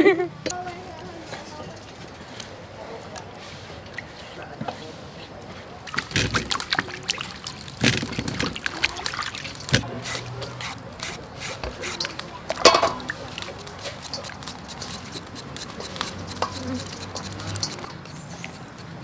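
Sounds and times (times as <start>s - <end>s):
hands splashing water in bowl: 3.1s - 19.0s
peeler scraping cucumber: 9.4s - 19.0s.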